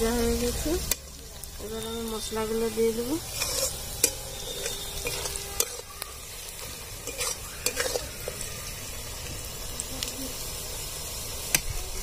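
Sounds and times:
onions sizzling in hot oil: 0:00.0 - 0:12.0
metal spatula scraping pan: 0:02.4 - 0:08.5.

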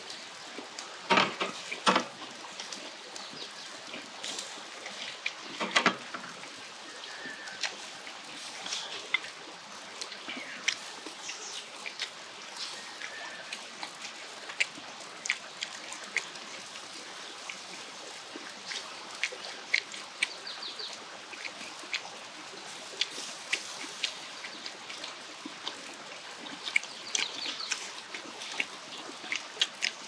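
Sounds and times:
pork sizzling on a grill: 0:00.0 - 0:03.2, 0:03.9 - 0:10.1, 0:21.3 - 0:24.6.

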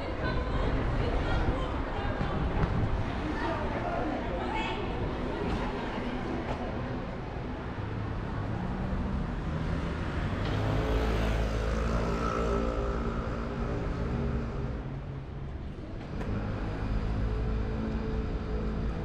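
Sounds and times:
vehicle driving past: 0:08.2 - 0:14.8.

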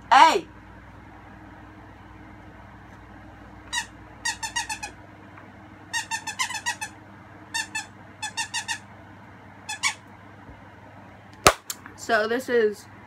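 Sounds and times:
squeaky dog toy squeaking: 0:03.7 - 0:05.0, 0:05.9 - 0:08.8, 0:09.7 - 0:10.0.

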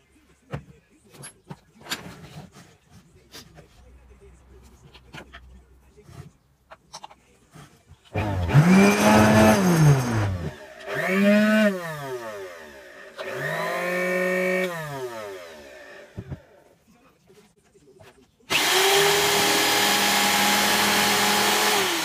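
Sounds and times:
sander motor whining: 0:08.2 - 0:16.4, 0:18.5 - 0:22.0.

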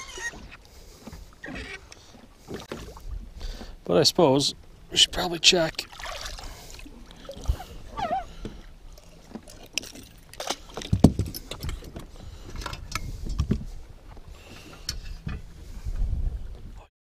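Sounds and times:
water lapping at a boat: 0:00.0 - 0:16.9
knocks and clicks from handling fish: 0:09.3 - 0:14.2
wind gusting on microphone: 0:10.9 - 0:13.9, 0:15.2 - 0:16.9.

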